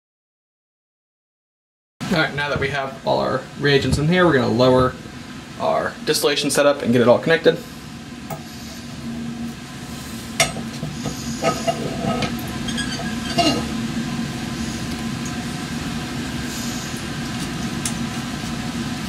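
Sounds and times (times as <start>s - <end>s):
fume hood hum: 2.0s - 19.0s
glassware and metal clinks: 11.4s - 13.7s.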